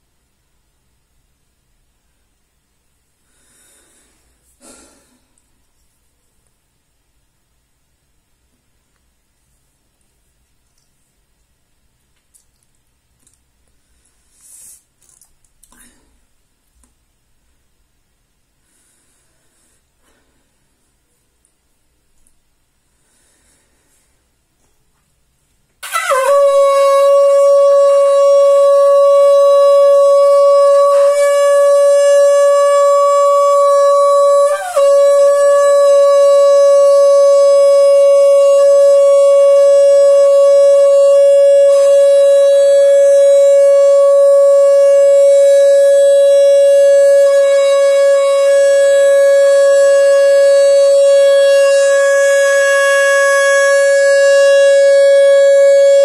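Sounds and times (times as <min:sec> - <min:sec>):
conch shell blown: 0:25.8 - 0:56.0.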